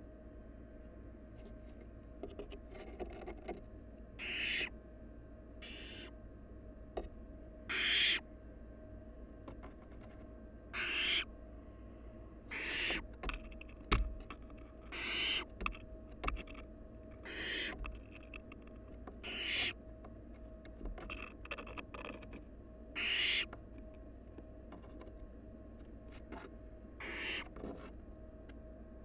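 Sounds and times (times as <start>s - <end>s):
scratches and clicks in nest box: 1.4s - 3.7s, 13.2s - 22.5s
owl nestlings hissing: 10.8s - 11.2s, 12.5s - 13.0s, 14.9s - 15.4s, 17.2s - 17.7s, 19.2s - 19.7s, 23.0s - 23.4s, 27.0s - 27.4s.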